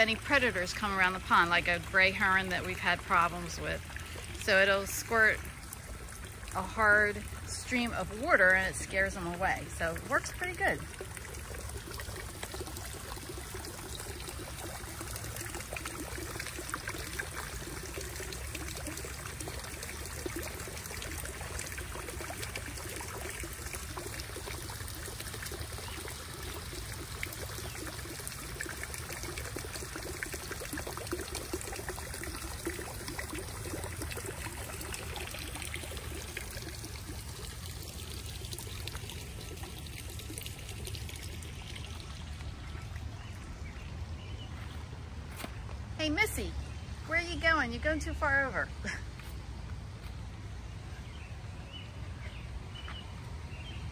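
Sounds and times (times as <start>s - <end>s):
fountain bubbling: 0.0s - 45.2s
water trickling and splashing: 0.0s - 53.9s.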